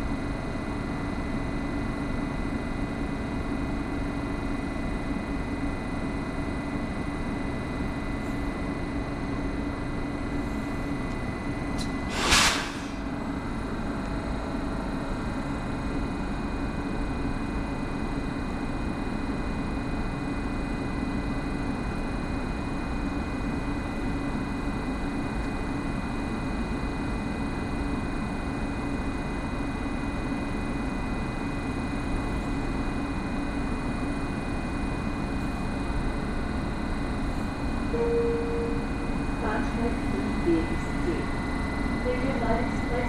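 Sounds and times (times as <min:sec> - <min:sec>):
electric train humming and whining: 0:31.9 - 0:43.0.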